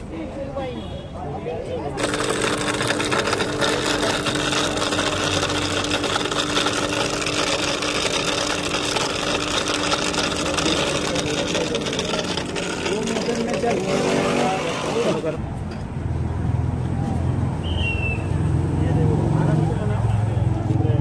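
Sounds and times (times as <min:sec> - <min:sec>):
ice being shaved: 0:02.0 - 0:15.4
motor hum: 0:02.0 - 0:15.4.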